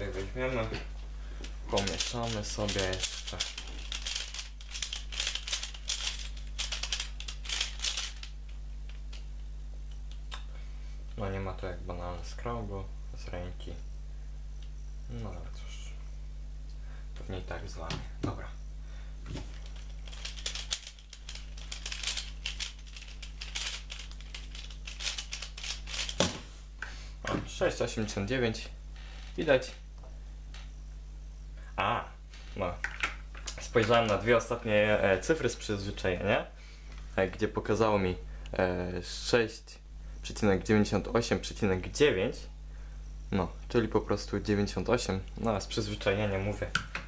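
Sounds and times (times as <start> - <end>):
puzzle pieces clicking and rattling: 1.8 - 8.3, 19.6 - 26.3.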